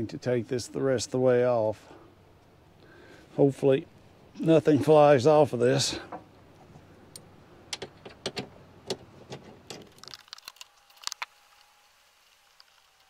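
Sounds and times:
metallic clicks of bolt hardware: 0:07.7 - 0:09.9.

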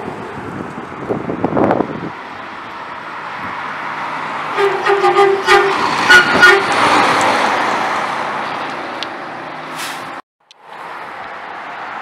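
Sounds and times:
truck driving past: 0:00.0 - 0:12.0
truck horn toots: 0:04.5 - 0:06.8.

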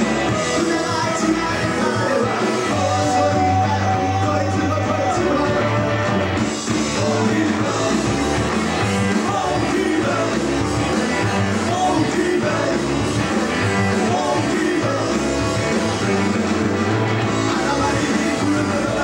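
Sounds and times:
rock band playing: 0:00.0 - 0:19.0
man singing: 0:00.2 - 0:06.1, 0:06.7 - 0:08.2, 0:09.0 - 0:13.1, 0:13.8 - 0:15.4, 0:17.2 - 0:19.0.

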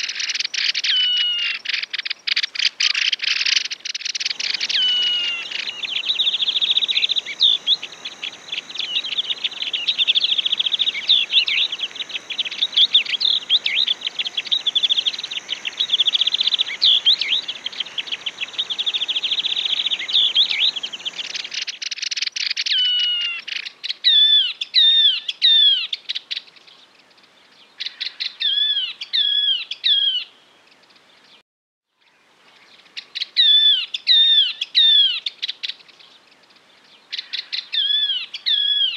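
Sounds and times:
bird chattering trill: 0:00.0 - 0:23.4.

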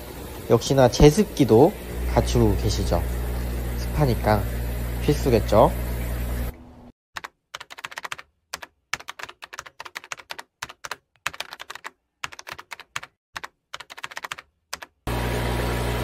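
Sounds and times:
keyboard typing clicks: 0:07.2 - 0:15.0.

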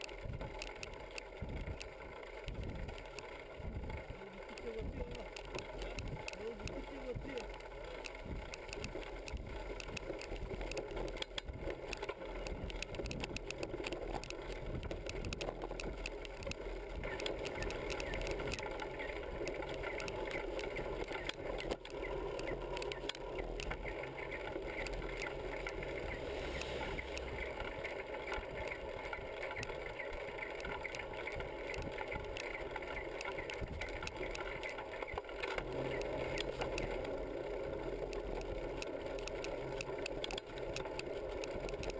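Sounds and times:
bicycle tyre noise: 0:00.0 - 0:41.9
wind noise: 0:01.3 - 0:01.9, 0:02.5 - 0:37.0.

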